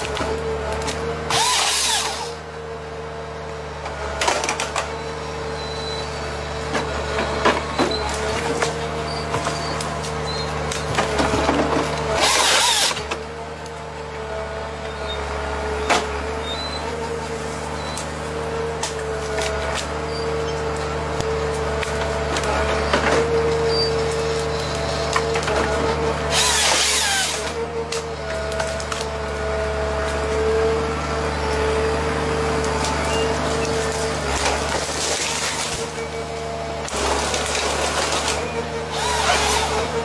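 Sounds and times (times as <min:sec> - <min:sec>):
chain saw cutting trunk: 0:00.0 - 0:02.4, 0:06.8 - 0:13.8, 0:15.8 - 0:29.3, 0:32.6 - 0:40.0
harvester engine and hydraulics: 0:00.0 - 0:40.0
wood cracking: 0:32.7 - 0:36.0.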